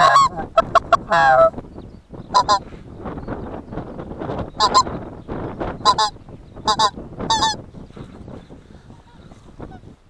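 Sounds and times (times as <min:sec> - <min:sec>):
geese calling in flight: 0:00.0 - 0:01.6, 0:02.3 - 0:02.8, 0:04.4 - 0:05.0, 0:05.8 - 0:09.9.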